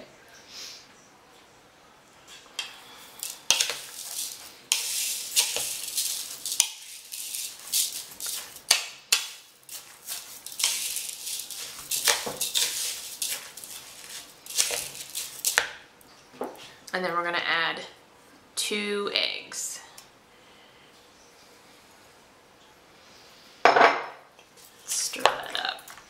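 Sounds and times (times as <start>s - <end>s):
rice grains rattling: 3.0s - 15.7s
hands kneading meat: 3.2s - 15.8s.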